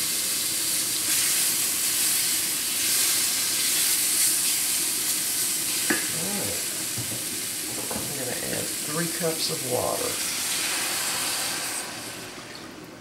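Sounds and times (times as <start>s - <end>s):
peppers sizzling in a pan: 0.0s - 12.6s.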